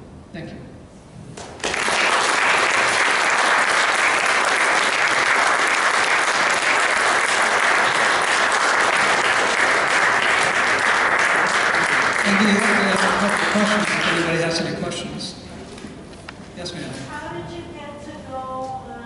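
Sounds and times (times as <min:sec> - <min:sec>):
audience applauding: 0:01.4 - 0:14.7.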